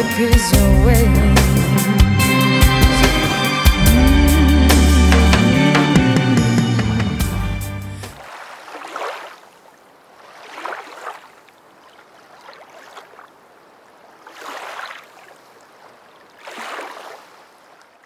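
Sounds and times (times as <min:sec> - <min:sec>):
waves washing in: 0:08.0 - 0:17.8.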